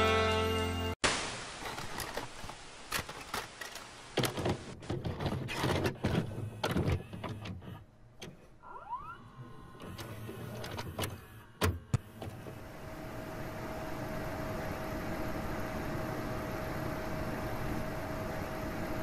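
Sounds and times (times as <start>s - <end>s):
music: 0.0s - 1.0s
tape static hiss: 1.0s - 4.8s.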